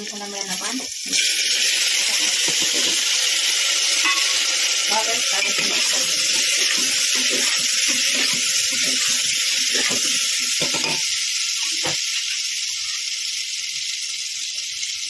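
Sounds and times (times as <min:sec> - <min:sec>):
vegetables sizzling in hot oil: 0:00.0 - 0:15.0
ladle clinking and scraping pot: 0:04.0 - 0:04.5, 0:05.4 - 0:11.1.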